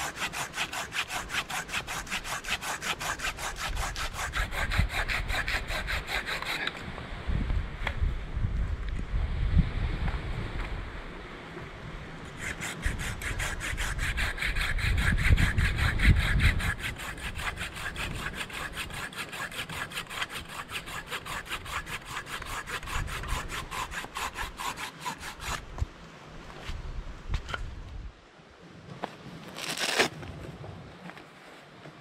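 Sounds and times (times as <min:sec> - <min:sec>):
pruning saw rasping through branch: 0:00.0 - 0:06.8, 0:12.3 - 0:25.7, 0:29.6 - 0:30.1.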